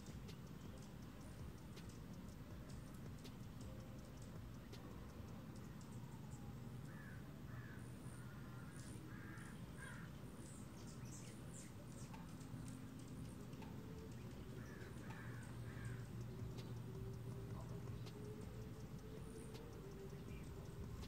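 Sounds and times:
hummingbirds chirping: 0:00.0 - 0:21.0
steady low hum: 0:00.0 - 0:21.0
harsh lower bird calls: 0:06.9 - 0:12.4, 0:13.6 - 0:21.0.

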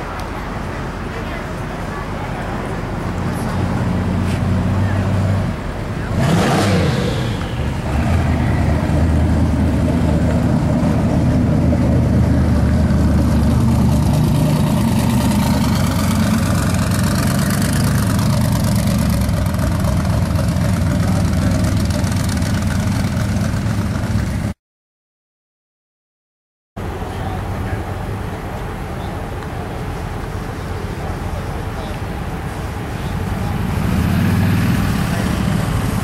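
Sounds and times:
car engine idling: 0:07.2 - 0:24.5.

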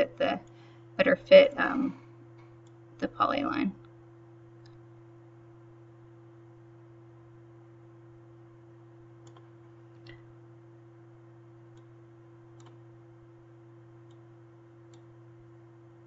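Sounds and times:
computer mouse clicks: 0:04.6 - 0:04.8, 0:09.2 - 0:10.2, 0:12.5 - 0:12.8, 0:14.0 - 0:14.3, 0:14.9 - 0:15.1.

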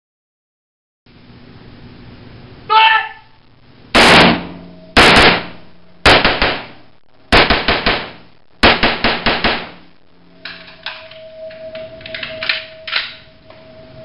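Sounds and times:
rifle shots echoing indoors: 0:04.0 - 0:09.9.

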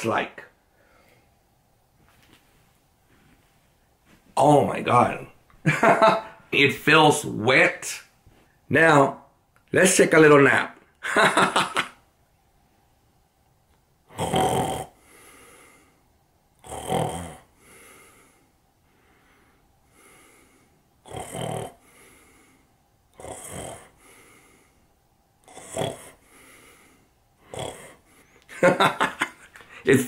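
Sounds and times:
man mock snoring: 0:14.1 - 0:15.0, 0:16.6 - 0:17.5, 0:21.0 - 0:22.0, 0:23.1 - 0:24.2, 0:25.4 - 0:26.3, 0:27.4 - 0:28.0
soft breath out: 0:17.6 - 0:20.8.

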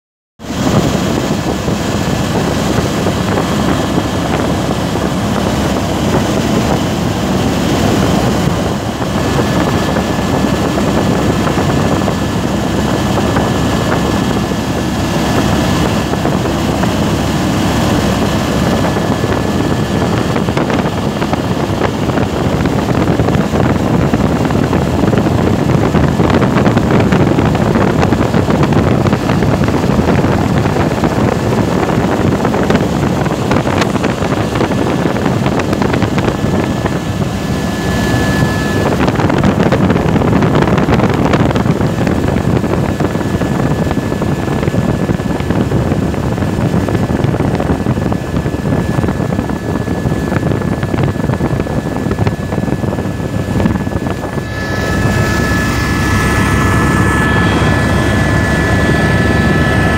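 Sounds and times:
helicopter engine and rotors: 0:00.4 - 0:59.9
faint high whine: 0:35.2 - 0:41.6, 0:49.2 - 0:59.9.

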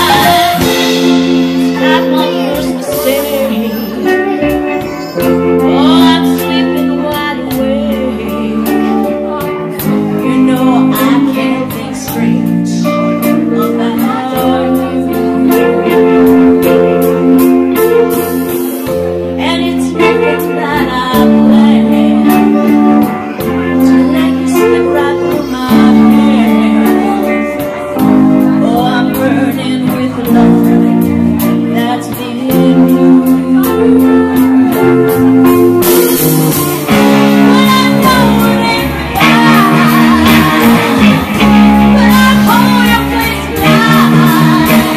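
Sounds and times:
drums and cymbals: 0:00.0 - 0:08.0, 0:08.6 - 0:19.7, 0:30.0 - 0:44.9
bass guitar: 0:00.0 - 0:44.9
electric guitars: 0:00.0 - 0:44.9
keyboard: 0:00.0 - 0:44.9
woman singing lead: 0:00.0 - 0:44.9.

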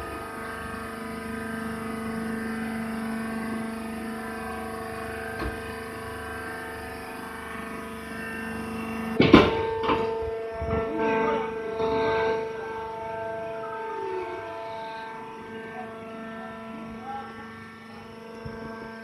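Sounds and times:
hydraulic power unit humming: 0:00.0 - 0:19.0
loud metal clank: 0:09.2 - 0:11.0.

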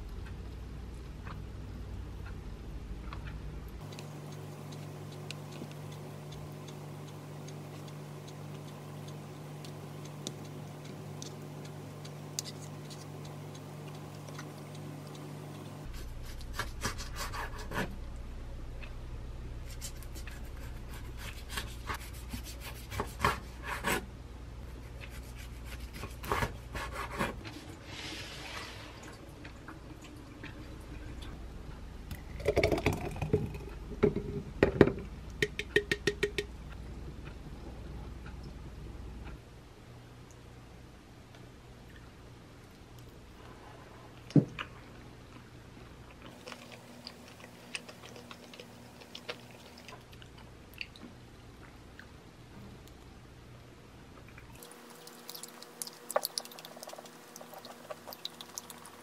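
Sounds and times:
low hum: 0:00.0 - 0:22.4, 0:27.4 - 0:59.0
hands rubbing soft fruit: 0:03.8 - 0:17.9.

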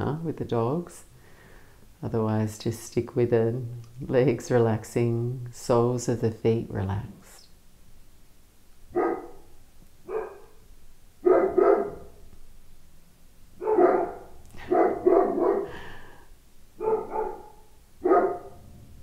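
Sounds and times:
dogs barking: 0:08.9 - 0:10.6, 0:11.2 - 0:12.2, 0:13.6 - 0:15.8, 0:16.8 - 0:18.7.

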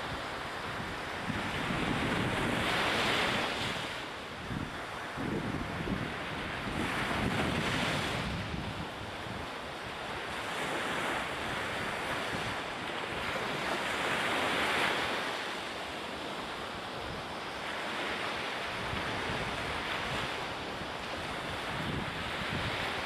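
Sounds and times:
wind buffeting microphone: 0:00.0 - 0:15.1, 0:16.4 - 0:23.0.

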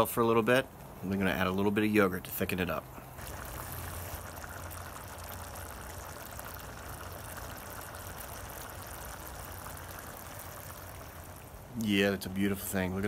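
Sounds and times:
curry bubbling in a pan: 0:03.0 - 0:12.6.

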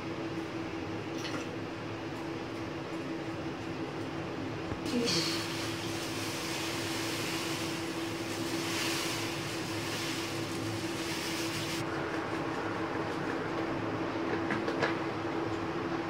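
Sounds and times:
sugar pouring into water: 0:05.2 - 0:11.8.

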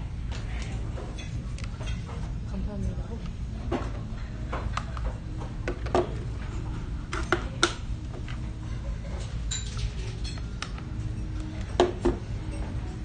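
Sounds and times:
low restaurant hum: 0:00.0 - 0:13.0
cutlery and dishes clinking: 0:08.8 - 0:12.8
high ringing clink: 0:09.5 - 0:10.5.

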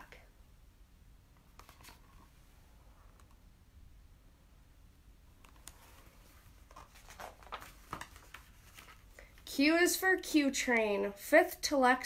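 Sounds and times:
faint clicks of book handling: 0:01.4 - 0:02.4, 0:05.4 - 0:09.5
page turning: 0:01.6 - 0:02.3, 0:05.4 - 0:09.4.

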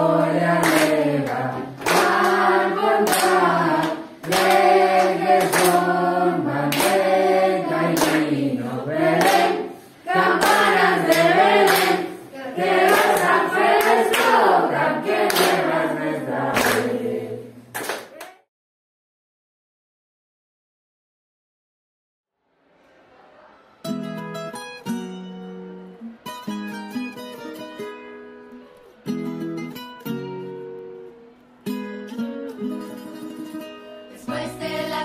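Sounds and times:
children singing in unison: 0:00.0 - 0:17.6
rhythmic clapping: 0:00.0 - 0:18.5.

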